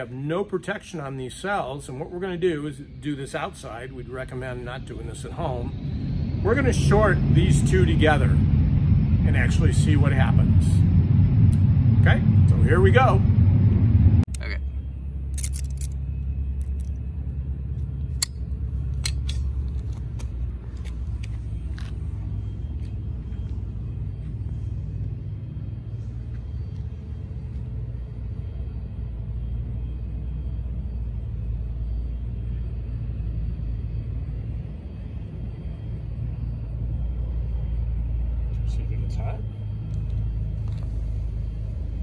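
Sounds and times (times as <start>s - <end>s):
steady low rumble: 0.0s - 42.0s
sharp metallic clicks: 15.3s - 16.0s, 18.0s - 22.0s.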